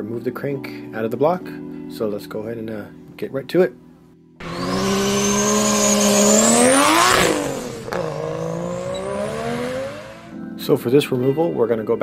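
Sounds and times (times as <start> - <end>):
car engine revving past: 4.4 - 10.4.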